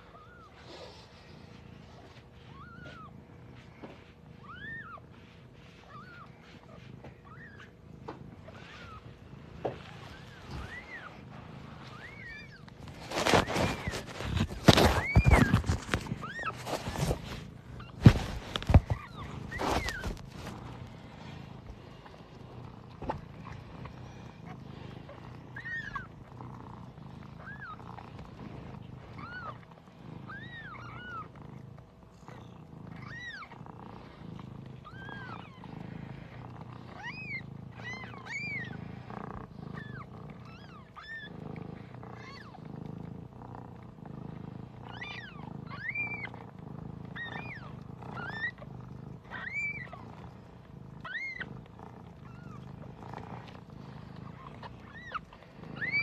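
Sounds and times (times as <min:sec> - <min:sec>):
cat purring: 0:00.0 - 0:56.0
kittens mewing: 0:07.0 - 0:20.8, 0:34.8 - 0:41.4, 0:47.1 - 0:50.4, 0:51.0 - 0:56.0.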